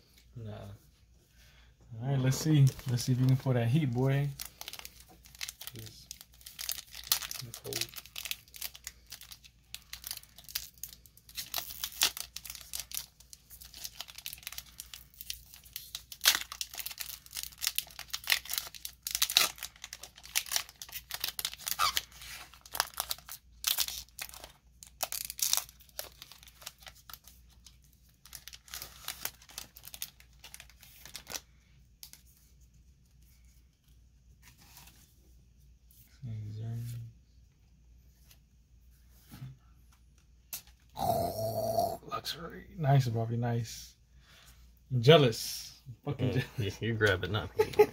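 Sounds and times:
foil wrapper tearing and crinkling: 2.5s - 27.6s, 28.2s - 31.4s.

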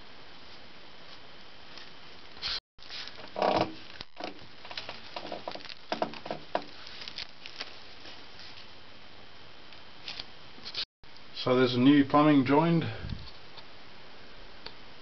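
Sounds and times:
low steady hiss: 0.0s - 15.0s
hands handling plastic pipe: 2.8s - 8.7s.

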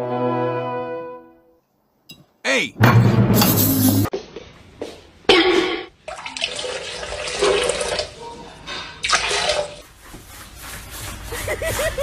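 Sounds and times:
water splashing in toilet bowl: 6.0s - 8.1s, 9.0s - 9.8s.

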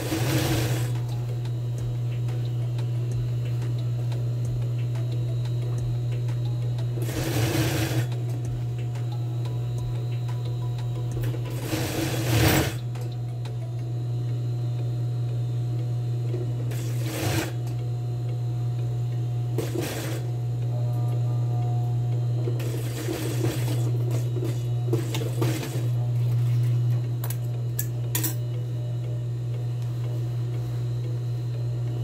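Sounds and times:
sewing machine stitching: 0.0s - 1.0s, 7.0s - 8.2s, 11.5s - 12.8s, 16.7s - 17.6s, 19.6s - 20.3s, 22.6s - 25.9s
sewing machine motor humming: 0.0s - 13.5s, 16.7s - 17.8s, 19.4s - 20.5s, 22.5s - 26.6s.

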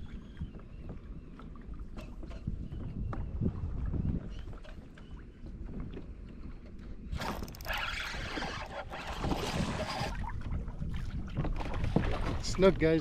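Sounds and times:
water noise: 0.0s - 13.0s
wind on microphone: 0.0s - 13.0s
fishing reel whirring: 7.3s - 9.2s.

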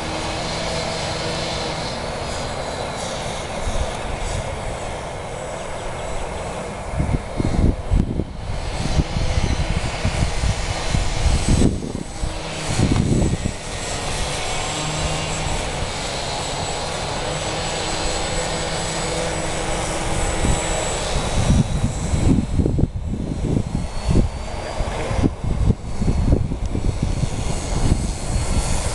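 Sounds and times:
model plane motor humming: 0.0s - 28.9s
wind buffeting microphone: 0.0s - 28.9s.

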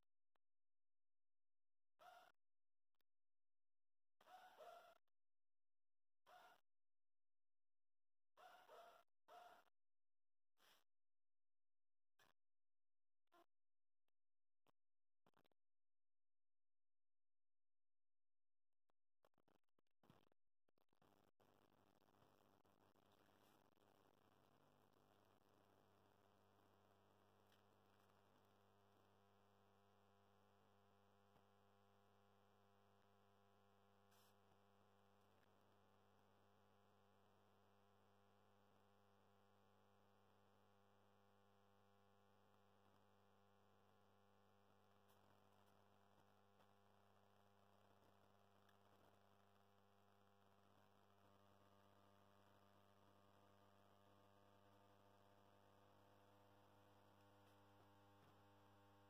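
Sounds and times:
faint electrical hum of lamp: 44.8s - 59.0s.

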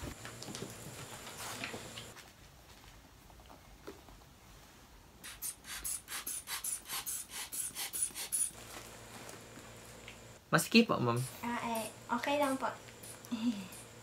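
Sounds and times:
rubber bulb pumping air puffs: 5.2s - 8.6s, 12.9s - 14.0s.

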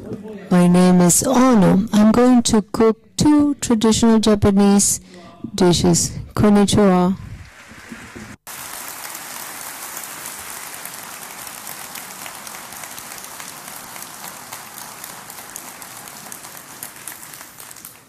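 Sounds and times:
audience applauding: 7.4s - 18.0s.

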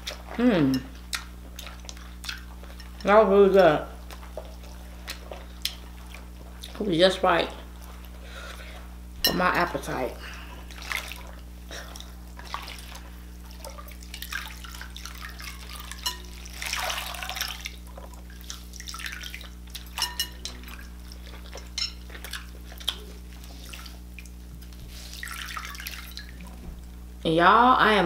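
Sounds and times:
water splashing and sloshing in bowl: 10.6s - 26.8s.

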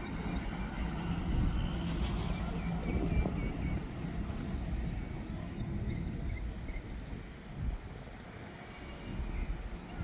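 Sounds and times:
rapid high insect chirping: 0.0s - 10.0s.

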